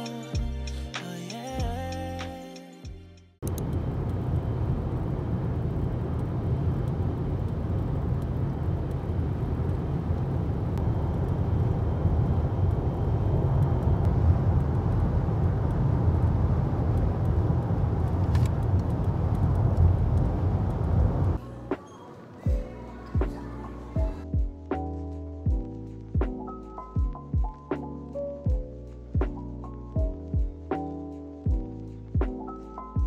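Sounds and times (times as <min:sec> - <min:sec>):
vehicle road and engine rumble: 0:03.4 - 0:24.2.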